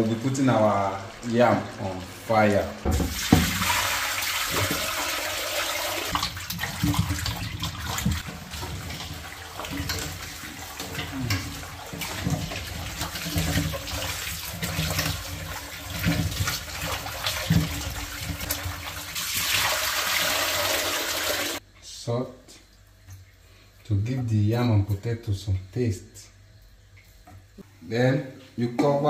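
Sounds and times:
tap running into pot: 2.8 - 3.7
water sloshing and splashing: 2.8 - 21.6.

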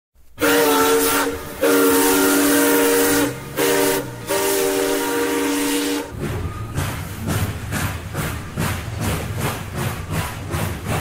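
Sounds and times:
steam locomotive chime whistle: 0.4 - 7.3
steam hissing: 0.4 - 11.0.

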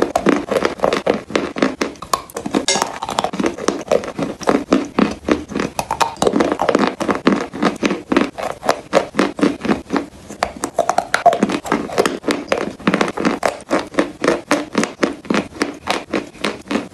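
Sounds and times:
chewing and mouth sounds: 0.0 - 16.9
sharp mouth clicks: 1.8 - 3.5.

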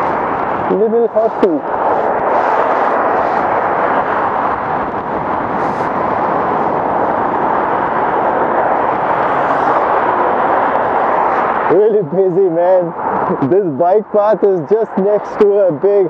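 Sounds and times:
highway traffic: 0.0 - 16.0
wind rushing across microphone: 0.0 - 16.0.

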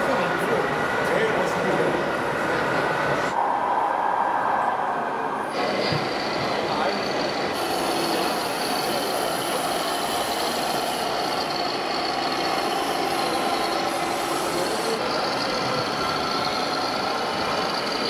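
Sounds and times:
steady background din: 0.0 - 18.0
diesel truck engine sounds: 5.2 - 18.0.

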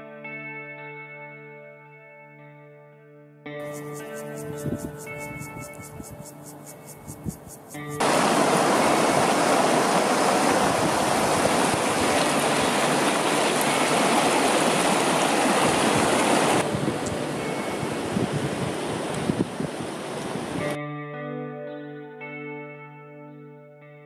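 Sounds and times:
stream rushing over rocks: 8.0 - 20.7.

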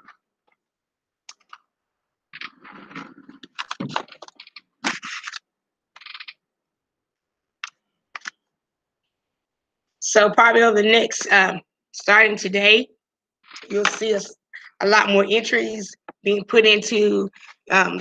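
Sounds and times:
keyboard typing: 1.3 - 1.6, 2.4 - 6.4, 7.6 - 8.4.

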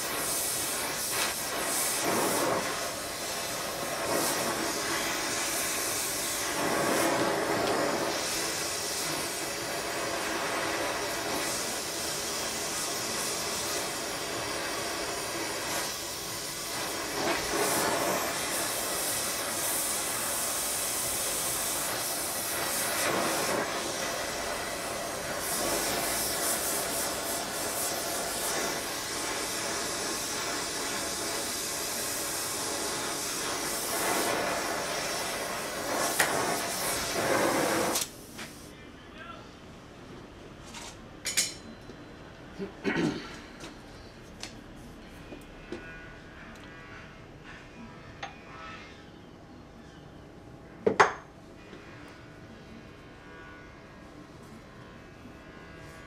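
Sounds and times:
gas torch flame hissing: 0.0 - 38.8.

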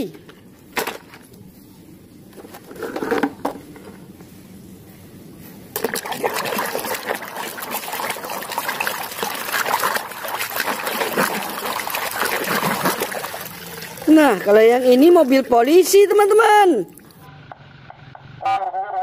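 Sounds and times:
hand sloshing muddy water: 5.8 - 15.4.

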